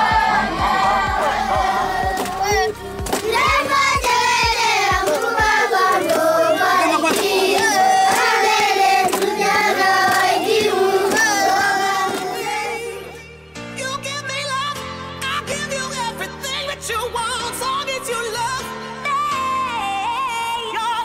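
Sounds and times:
children singing in unison: 0:00.0 - 0:13.2.

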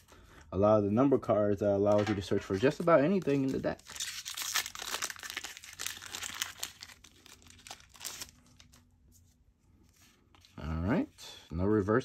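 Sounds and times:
foil wrapper crinkling: 0:02.6 - 0:08.8.

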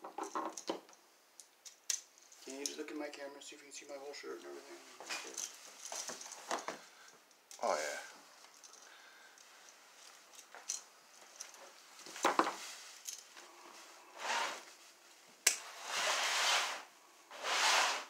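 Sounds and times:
rasping scrapes: 0:15.6 - 0:18.0.

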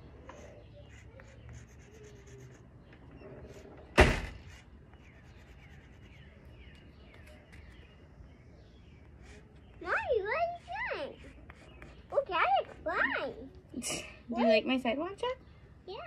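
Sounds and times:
door slamming: 0:03.9 - 0:04.5.

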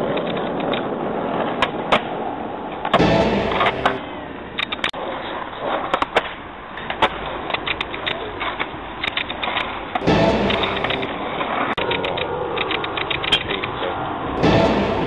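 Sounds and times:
skateboard clicks and knocks: 0:00.0 - 0:03.0, 0:04.6 - 0:10.0
skateboard wheels rolling on asphalt: 0:00.0 - 0:03.0, 0:05.0 - 0:10.0.

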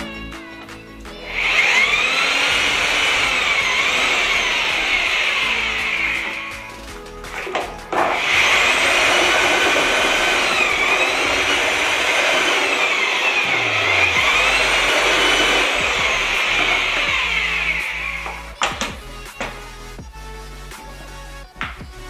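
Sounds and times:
mortar mixer motor whine: 0:01.2 - 0:18.9.

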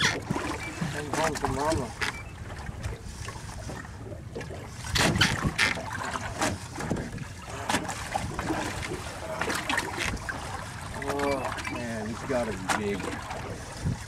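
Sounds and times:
water against boat hull: 0:00.0 - 0:14.0
wind on microphone: 0:04.8 - 0:05.8, 0:12.8 - 0:14.0.

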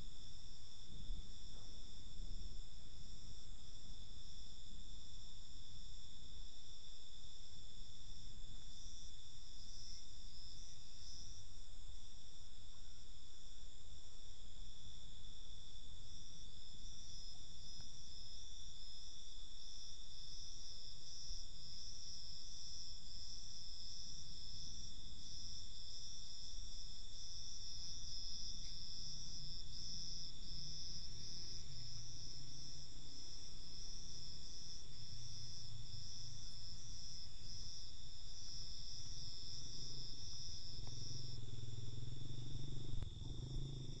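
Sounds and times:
insects chirping: 0:00.0 - 0:44.0.

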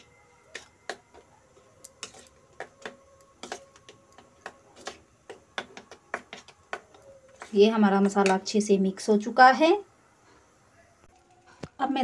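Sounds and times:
spoon clinking against steel bowl: 0:01.8 - 0:08.5.

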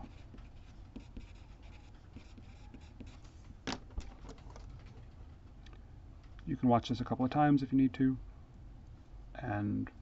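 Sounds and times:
pencil scratching on paper: 0:00.0 - 0:03.4.

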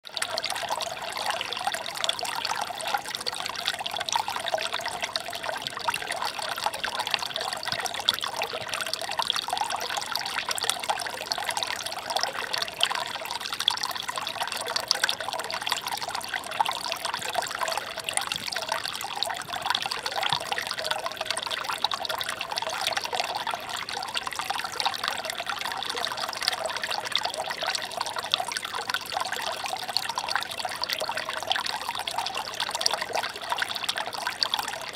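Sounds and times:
water trickling over stones: 0:00.0 - 0:34.9.

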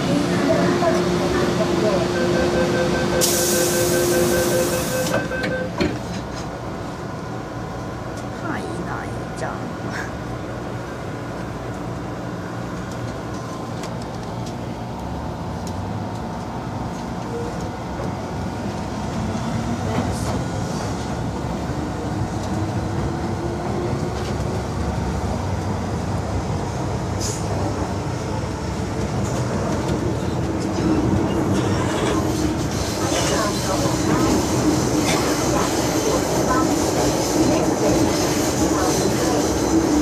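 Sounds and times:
rumble of train running gear: 0:00.0 - 0:40.0
train motor whine: 0:00.8 - 0:05.8.

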